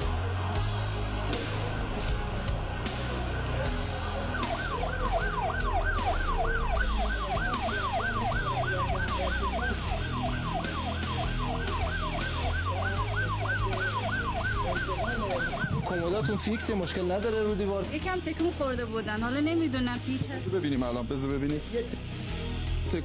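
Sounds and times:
siren yelping: 2.8 - 17.6.

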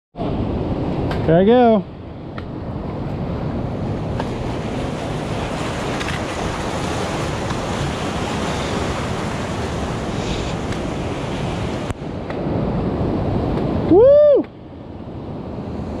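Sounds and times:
waves breaking on rocks: 2.4 - 14.0.

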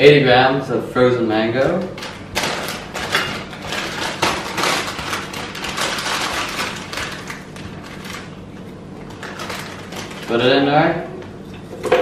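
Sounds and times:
plastic bag crinkling: 2.0 - 10.7.

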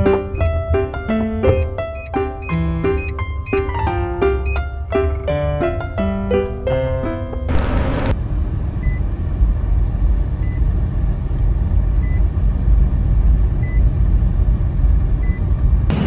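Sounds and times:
road traffic rumble: 0.0 - 16.0
short burst of noise: 7.5 - 8.2.

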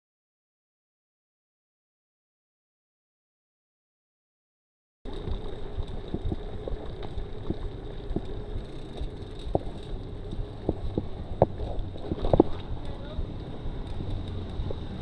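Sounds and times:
bike clicks and knocks: 5.1 - 15.0
bike tyres rolling: 5.1 - 15.0
wind noise on microphone: 5.1 - 15.0.

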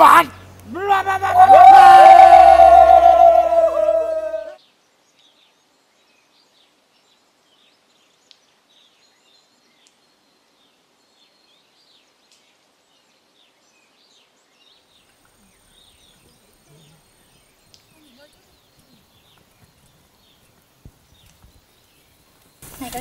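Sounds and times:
men shouting war cry: 0.0 - 4.6.

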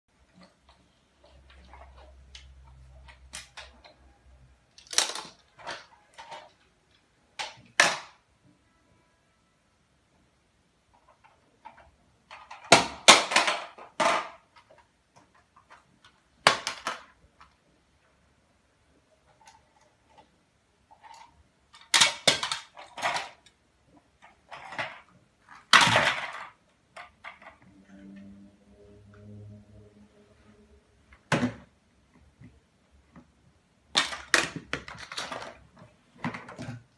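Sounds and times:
plastic toy trucks clattering: 1.2 - 4.0, 4.7 - 8.2, 10.9 - 17.6, 19.1 - 27.7, 33.9 - 36.9.

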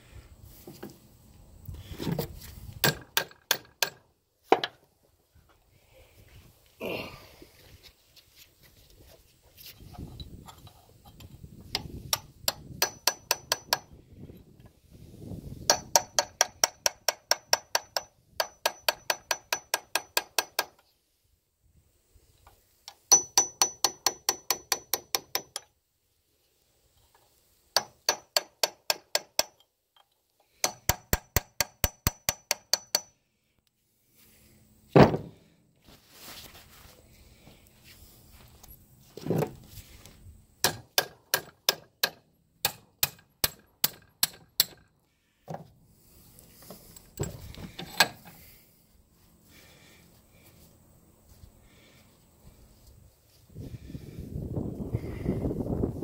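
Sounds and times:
hammer tapping on steel: 12.1 - 14.0, 15.7 - 20.8, 22.9 - 25.7, 27.8 - 29.7, 30.6 - 33.2, 40.6 - 44.8.

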